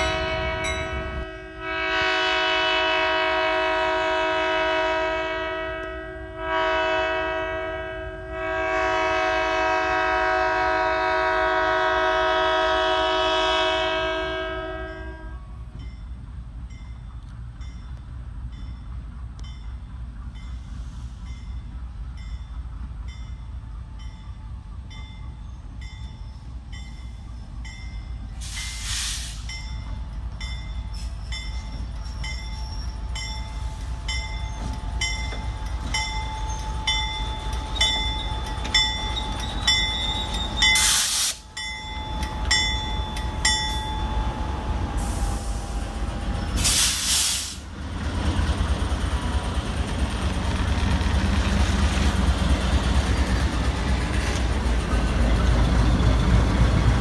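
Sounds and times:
locomotive air horn blasts: 0:00.0 - 0:15.5
locomotive engine rumble: 0:00.0 - 0:57.0.

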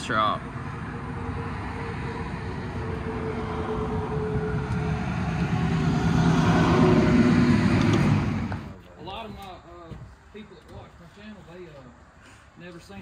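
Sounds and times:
vehicle engine: 0:00.0 - 0:08.8.

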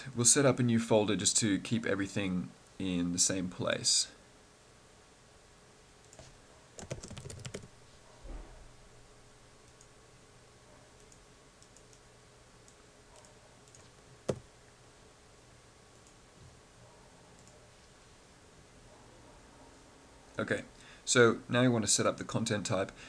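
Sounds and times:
typing on keyboard: 0:06.1 - 0:07.7.

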